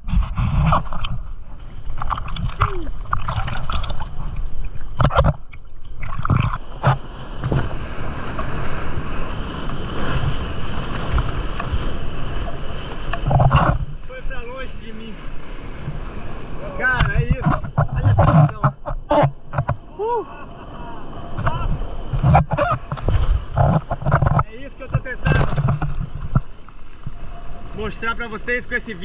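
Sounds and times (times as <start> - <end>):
wind on microphone: 0.0 - 1.4, 6.2 - 14.0, 15.5 - 20.2, 21.0 - 27.8
seawater splashing: 0.5 - 29.0
surf rushing: 6.0 - 29.0.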